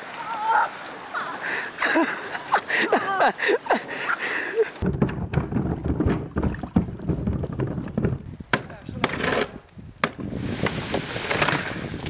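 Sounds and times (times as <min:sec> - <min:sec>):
water rushing: 0:00.0 - 0:04.9
people shouting: 0:00.2 - 0:01.4
wind buffeting microphone: 0:04.8 - 0:12.0.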